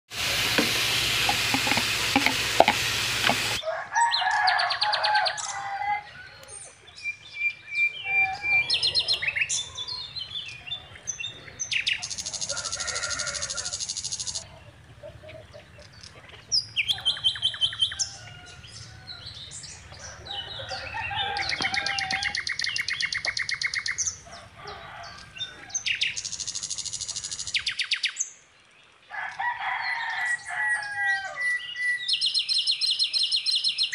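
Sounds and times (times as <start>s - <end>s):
meat sizzling on a grill pan: 0.1s - 3.6s
birds chirping with buzzy trills: 0.2s - 29.0s.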